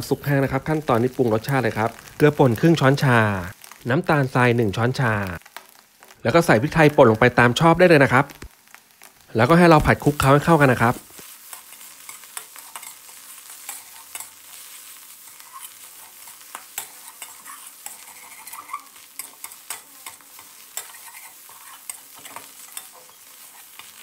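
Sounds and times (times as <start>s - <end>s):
oil sizzling: 0.0s - 24.0s
metal spatula scraping a wok: 11.3s - 24.0s.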